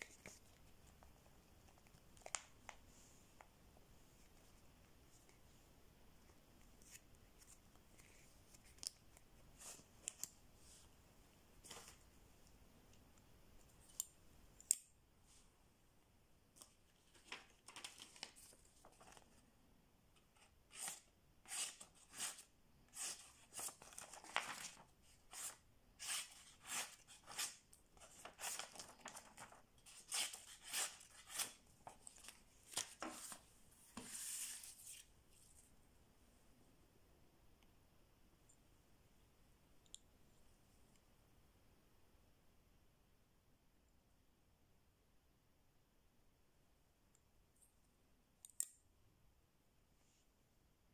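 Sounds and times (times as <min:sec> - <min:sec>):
knife blade cutting paper: 0:25.3 - 0:27.6, 0:29.9 - 0:31.6.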